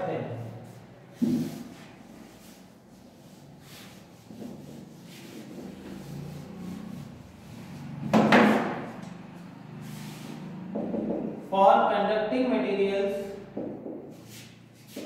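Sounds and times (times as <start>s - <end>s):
duster rubbing on whiteboard: 0.4s - 11.2s, 14.1s - 15.0s
loud knock: 10.8s - 11.4s.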